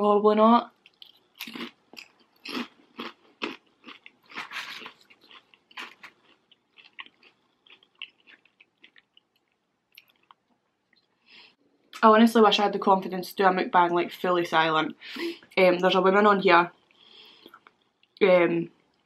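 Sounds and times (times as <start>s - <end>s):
crunching and chewing crispy food: 0.8s - 10.5s.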